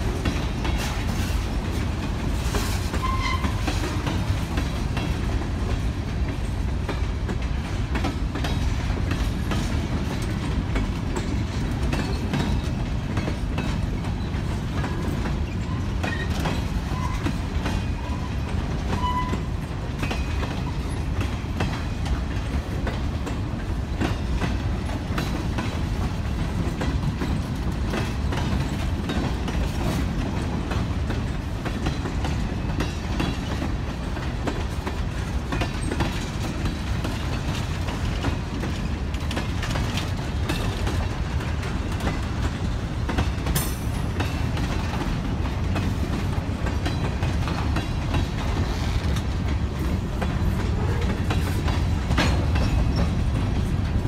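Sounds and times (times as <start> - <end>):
freight train wheels rumbling: 0.0 - 54.0
wheels clacking over rail joints: 0.0 - 54.0.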